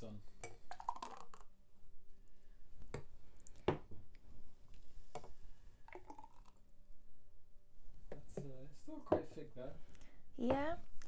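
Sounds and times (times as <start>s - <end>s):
smoothie glugging into glass: 0.7s - 1.4s, 5.9s - 6.5s.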